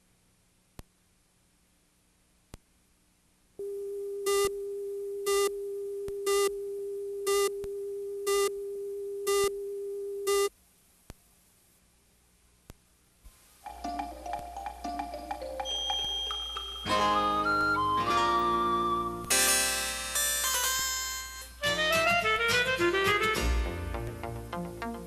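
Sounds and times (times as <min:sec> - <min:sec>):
faint tape hiss: 0:00.0 - 0:25.0
short loud beeps: 0:09.3 - 0:09.6, 0:10.2 - 0:10.5.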